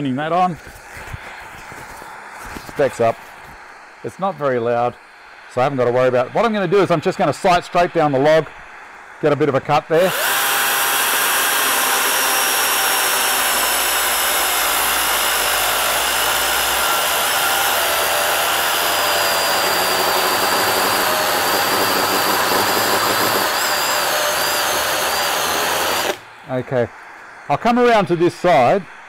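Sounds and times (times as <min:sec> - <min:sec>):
chainsaw cutting log: 0:10.0 - 0:26.2.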